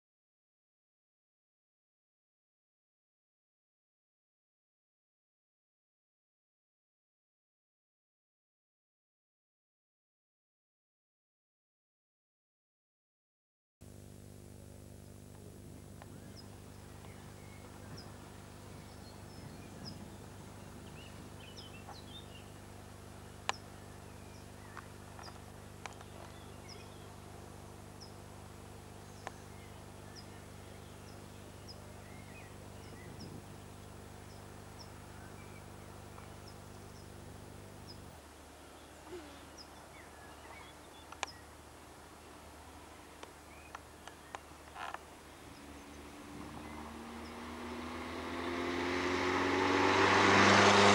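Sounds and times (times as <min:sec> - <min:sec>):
steady low hum: 0:13.8 - 0:49.2
small birds chirping: 0:14.9 - 0:50.9.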